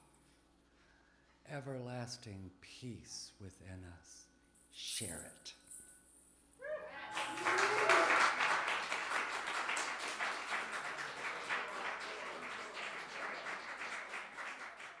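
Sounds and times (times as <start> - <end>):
voice cheering: 6.6 - 8.7
audience applauding: 6.9 - 15.0.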